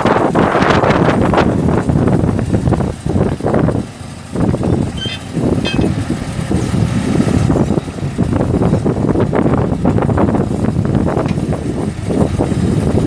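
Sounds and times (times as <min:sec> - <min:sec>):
diesel engine running: 0:00.0 - 0:13.0
wind buffeting microphone: 0:00.0 - 0:13.0
hydraulics lowering legs: 0:00.4 - 0:13.0
high squeaks: 0:04.6 - 0:06.1.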